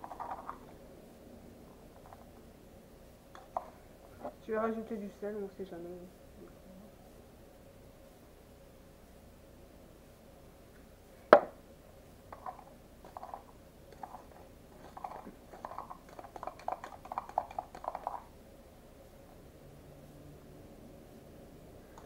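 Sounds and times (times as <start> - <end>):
sharp knock: 11.4 - 11.6
spoon stirring thick slime: 12.4 - 18.3.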